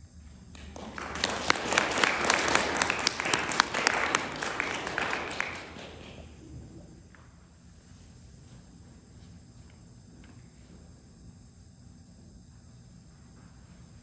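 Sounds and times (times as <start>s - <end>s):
audience applauding: 0.5s - 6.6s.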